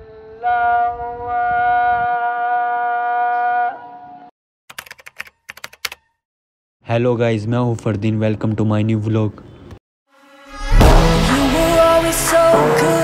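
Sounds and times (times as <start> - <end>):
sharp clicks like keyboard typing: 4.7 - 6.1.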